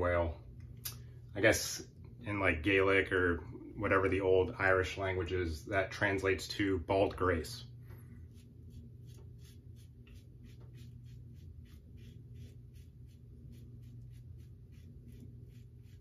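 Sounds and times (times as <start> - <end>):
razor scraping stubble: 8.3 - 16.0.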